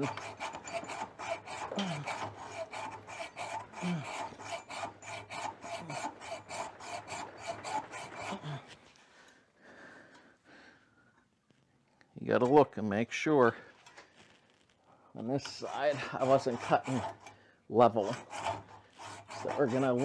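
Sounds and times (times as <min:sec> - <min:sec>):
hacksaw rasping through steel: 0:00.0 - 0:08.8, 0:15.4 - 0:20.0.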